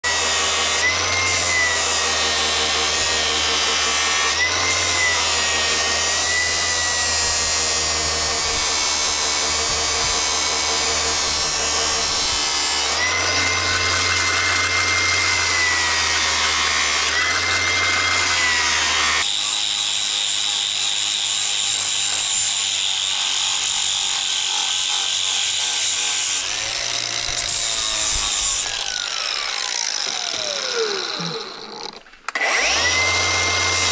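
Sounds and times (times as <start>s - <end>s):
angle grinder grinding steel: 0.0s - 33.9s.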